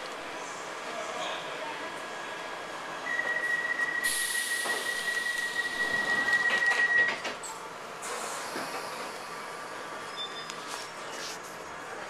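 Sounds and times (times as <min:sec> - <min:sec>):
tube train high-pitched whine: 0:03.0 - 0:07.4.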